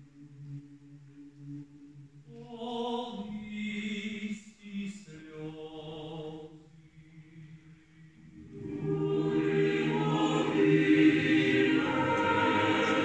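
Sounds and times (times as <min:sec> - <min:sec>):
higher women's voices singing: 0:08.2 - 0:13.0
low men's voices singing: 0:08.5 - 0:13.0.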